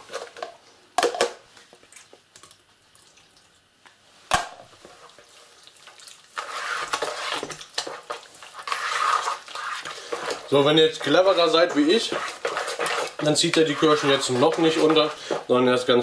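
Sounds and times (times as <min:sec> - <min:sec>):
whisk squelching in wet batter: 0:04.8 - 0:16.0.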